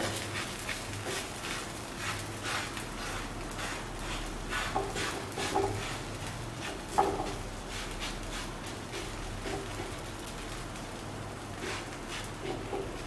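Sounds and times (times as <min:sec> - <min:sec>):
hands patting dough: 0:00.0 - 0:10.5.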